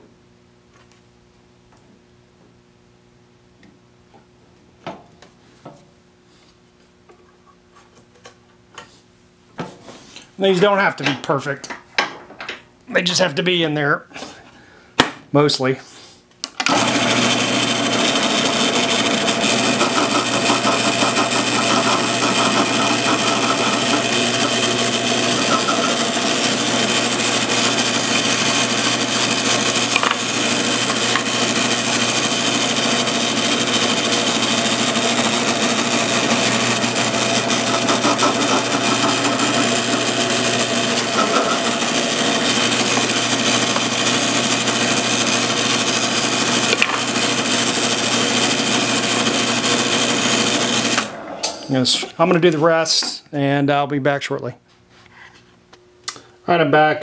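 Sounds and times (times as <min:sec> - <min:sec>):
drill press motor humming: 0:16.6 - 0:51.8.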